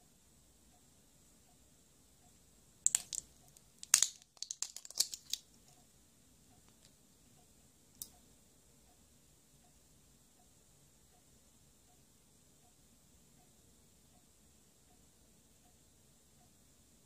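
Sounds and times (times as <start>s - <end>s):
plastic cap clicks and crackles: 2.8s - 5.5s.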